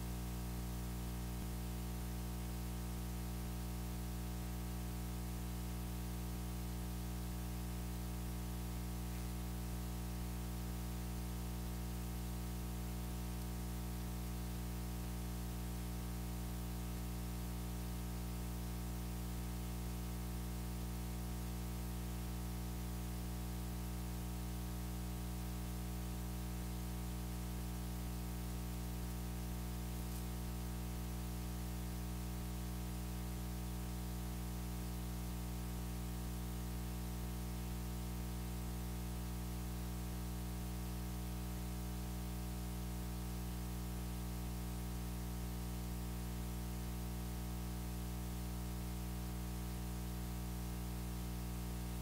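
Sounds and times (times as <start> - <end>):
electrical hum with buzz: 0.0 - 52.0
constant hiss: 1.2 - 15.6, 26.8 - 32.4.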